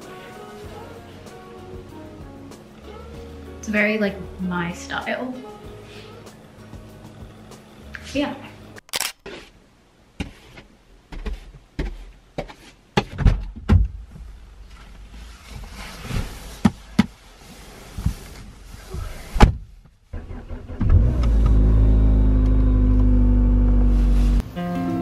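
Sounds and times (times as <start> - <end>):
steady low hum: 2.7 - 8.8
thuds and clicks: 11.1 - 14.3
nylon jacket rustling: 14.6 - 19.3.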